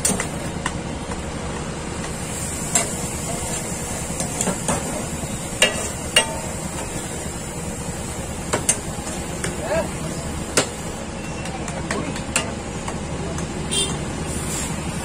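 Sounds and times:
steady background hum: 0:00.0 - 0:13.9
metal spatula clinking on griddle: 0:05.6 - 0:06.5.

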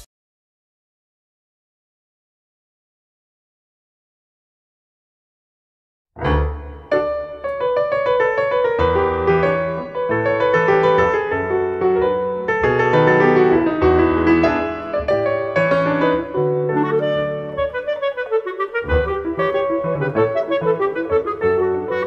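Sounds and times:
instrumental piano music: 0:06.2 - 0:22.0.

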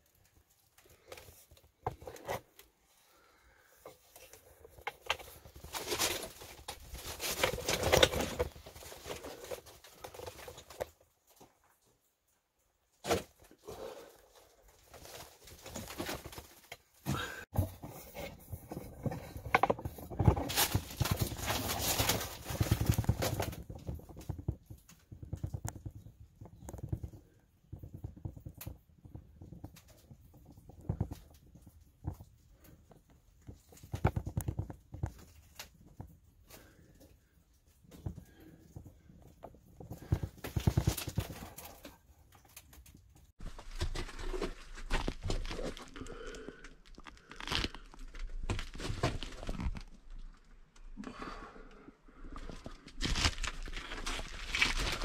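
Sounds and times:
footsteps on loose stones: 0:52.3 - 0:55.0.

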